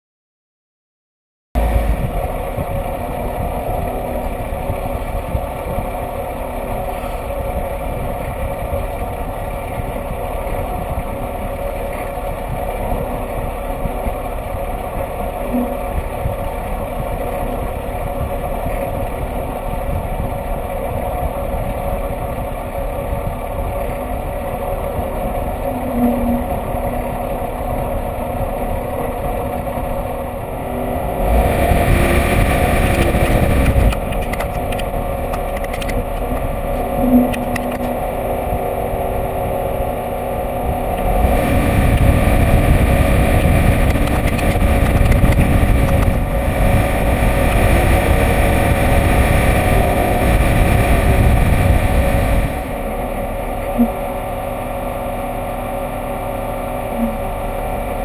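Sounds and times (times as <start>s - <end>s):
truck engine droning: 1.6s - 58.0s.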